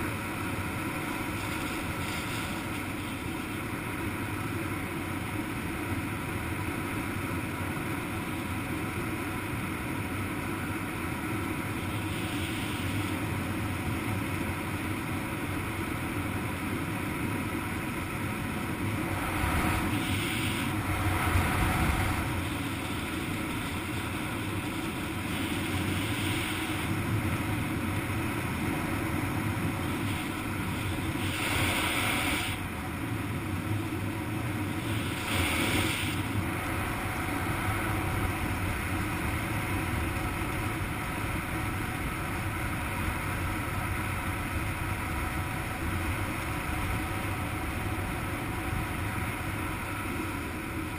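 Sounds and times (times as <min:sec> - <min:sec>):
wind rushing over microphone: 0:18.6 - 0:50.9.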